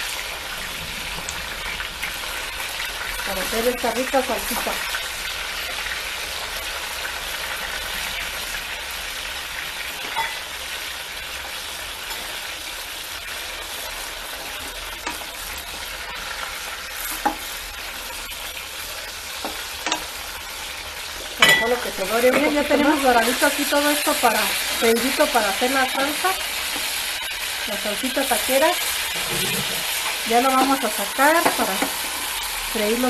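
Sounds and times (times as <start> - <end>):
hot oil sizzling: 0.0 - 33.0.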